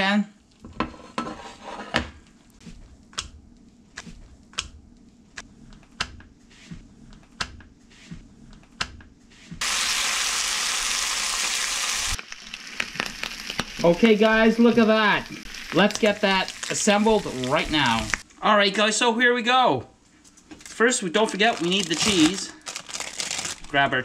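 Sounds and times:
ham sizzling in hot oil: 9.6s - 18.2s
oil crackling pops: 12.2s - 13.9s.

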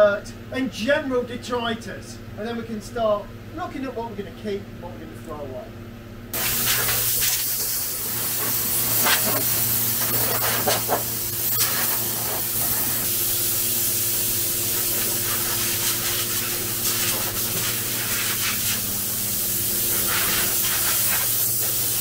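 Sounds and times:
air blow gun hissing: 6.4s - 22.0s.

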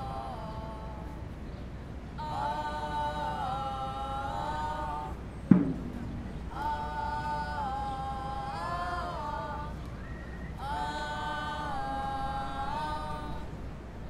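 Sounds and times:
voices chanting in harmony: 0.0s - 14.0s
loud thump with low ringing: 5.5s - 6.1s.

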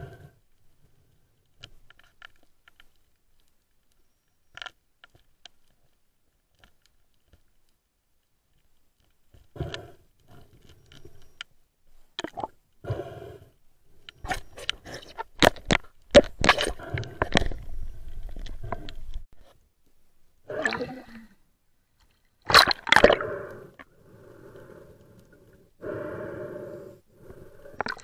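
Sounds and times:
underwater clicks and knocks: 14.6s - 19.2s.

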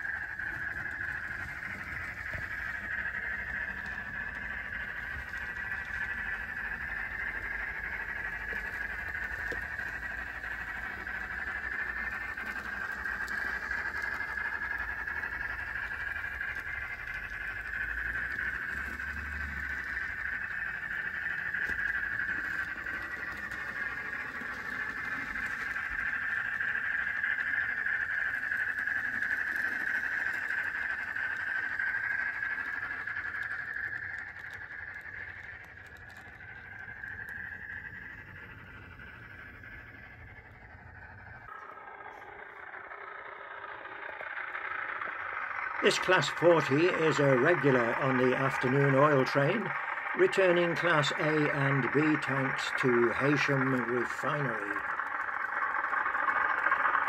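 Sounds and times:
model train steam sounds from speaker: 0.0s - 57.0s.

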